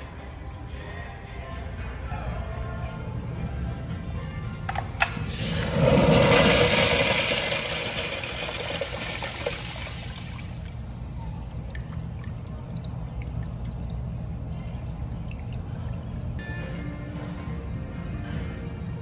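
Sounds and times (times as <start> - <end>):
urinal flushing: 5.2 - 14.4.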